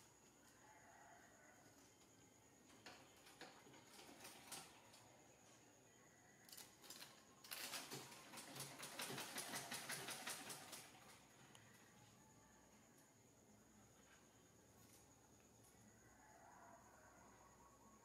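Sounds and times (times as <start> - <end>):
sewing machine stitching: 3.5 - 4.8, 6.9 - 11.2.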